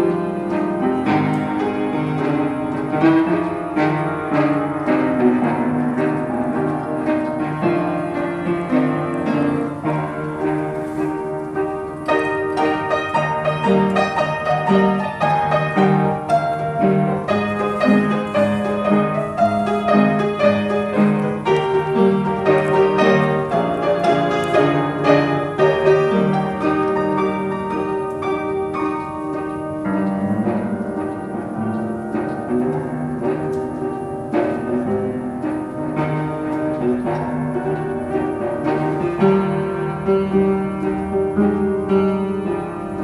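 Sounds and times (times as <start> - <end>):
piano music: 0.0 - 43.0.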